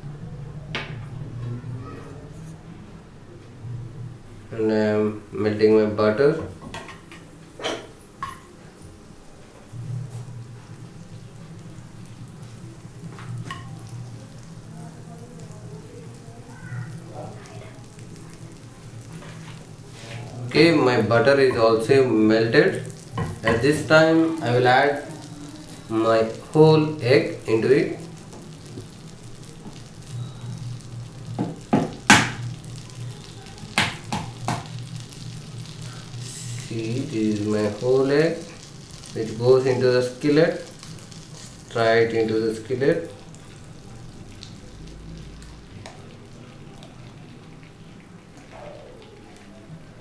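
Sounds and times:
butter sizzling in a frying pan: 0:04.6 - 0:50.0.

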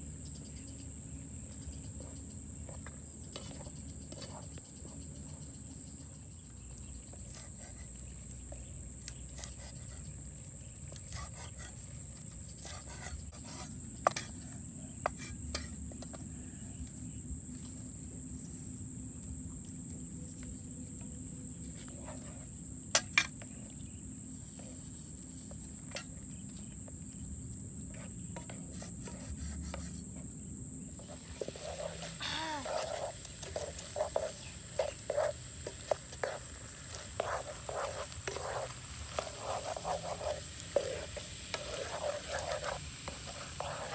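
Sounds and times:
high-pitched insect drone: 0:31.0 - 0:36.5
frying pan being stirred: 0:31.0 - 0:43.9.

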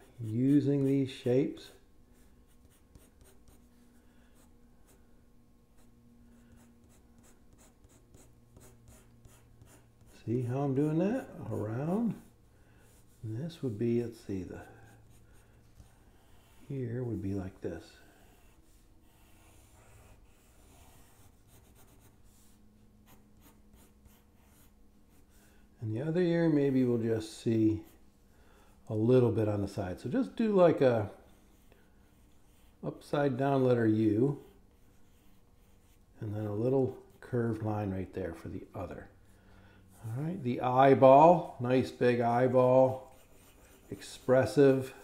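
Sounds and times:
pencil scratching on paper: 0:00.0 - 0:05.0, 0:05.8 - 0:25.5, 0:34.4 - 0:36.0, 0:42.1 - 0:45.0
faint steady hum: 0:00.0 - 0:45.0.

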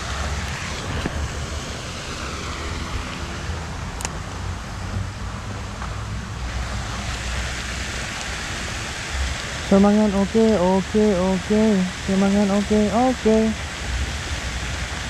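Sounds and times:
wind on microphone: 0:00.0 - 0:04.0.

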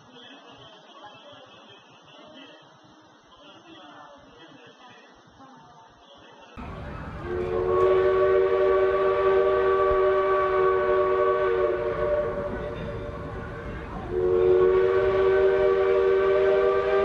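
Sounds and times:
low rumble of train: 0:06.6 - 0:17.0
steam locomotive whistle: 0:06.6 - 0:17.0.

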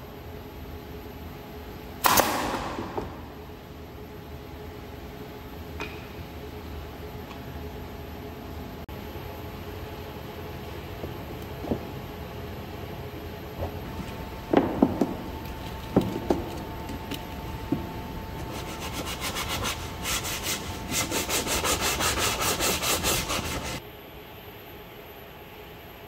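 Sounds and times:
wooden knocks of plywood pieces: 0:14.5 - 0:15.2
sandpaper sanding wood edge: 0:18.4 - 0:23.8.

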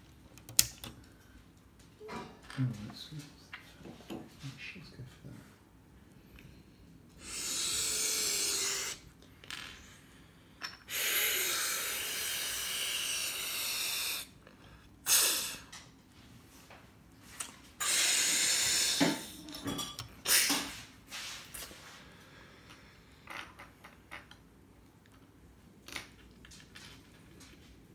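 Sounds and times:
plastic pieces snapping on: 0:00.3 - 0:01.0
bursts of hissing air: 0:07.2 - 0:09.0, 0:10.9 - 0:14.3, 0:15.1 - 0:15.7, 0:17.8 - 0:19.4.

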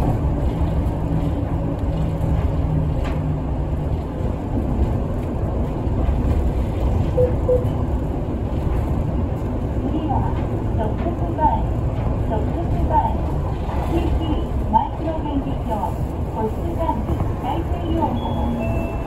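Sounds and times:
bus engine and road rumble: 0:00.0 - 0:19.0.

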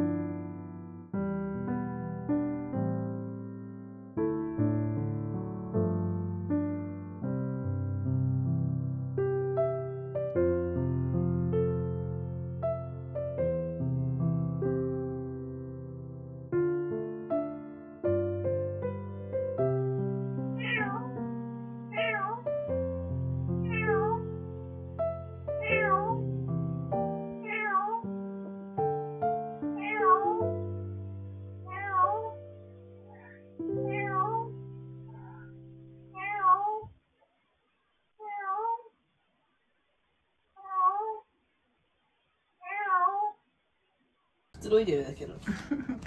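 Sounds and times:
soft piano music: 0:00.0 - 0:36.8
cat meowing: 0:20.6 - 0:21.2, 0:21.9 - 0:22.5, 0:23.6 - 0:24.3, 0:25.6 - 0:26.2, 0:27.4 - 0:28.1, 0:29.8 - 0:30.5, 0:31.7 - 0:32.4, 0:33.1 - 0:35.5, 0:36.2 - 0:36.9, 0:38.2 - 0:38.9, 0:40.6 - 0:41.3, 0:42.6 - 0:43.4.

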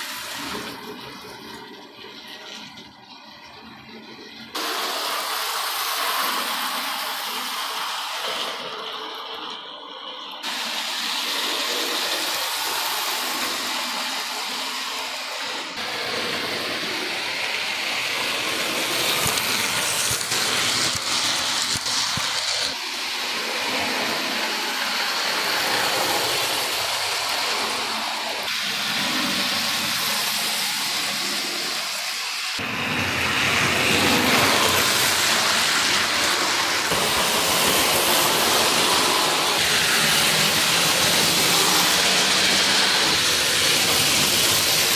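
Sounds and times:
model train whirring on track: 0:00.0 - 0:44.9.

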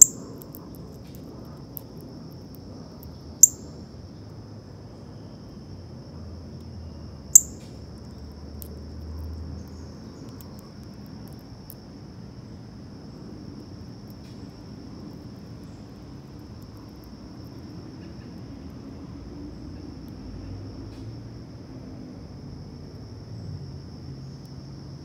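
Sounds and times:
insect chorus: 0:00.0 - 0:25.0
sharp high bird chirp: 0:03.4 - 0:03.7, 0:07.4 - 0:07.6.

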